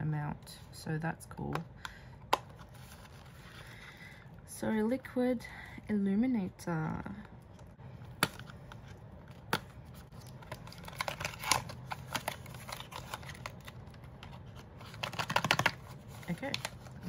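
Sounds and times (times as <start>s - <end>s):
packaging clicks: 8.2s - 17.0s.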